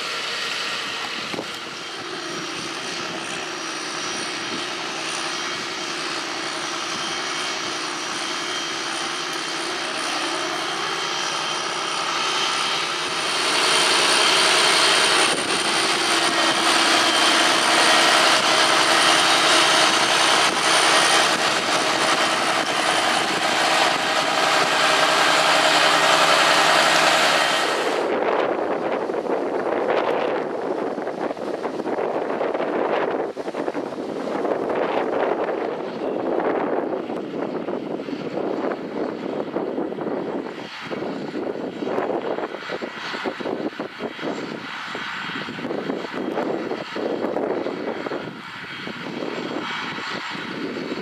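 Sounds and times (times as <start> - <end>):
thin high whine: 0.0 - 37.3
tractor engine droning under load: 0.0 - 51.0.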